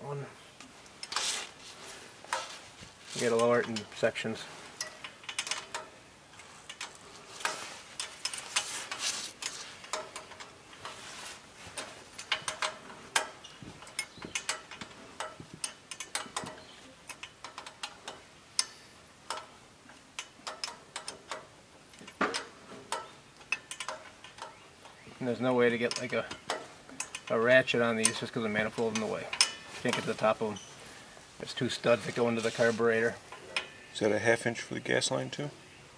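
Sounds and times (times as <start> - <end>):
wrench clicking on bolts: 4.8 - 11.0, 11.8 - 25.0, 25.7 - 30.0.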